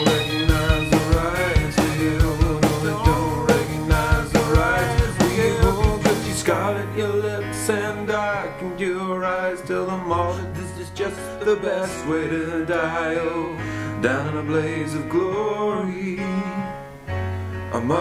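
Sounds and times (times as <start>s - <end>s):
drum kit beat: 0.0s - 6.6s
bass line: 0.0s - 7.2s
man singing: 0.0s - 16.9s, 17.7s - 18.0s.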